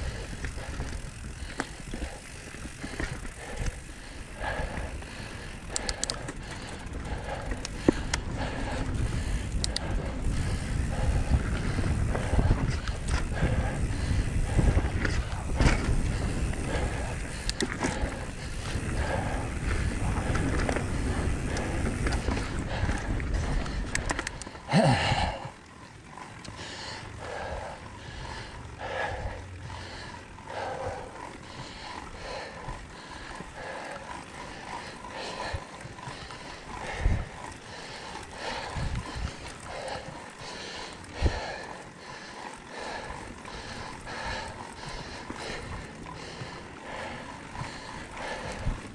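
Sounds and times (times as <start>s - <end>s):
bike rattling: 0.0s - 48.9s
bike tyres on dirt trail: 0.0s - 48.9s
heavy breathing: 0.0s - 48.9s
bike thumping over bumps: 14.5s - 16.6s.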